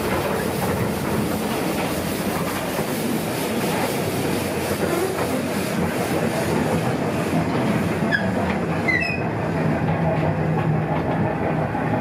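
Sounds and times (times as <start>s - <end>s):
train car rattling over rails: 0.0s - 12.0s
high metallic squeals: 8.1s - 9.3s.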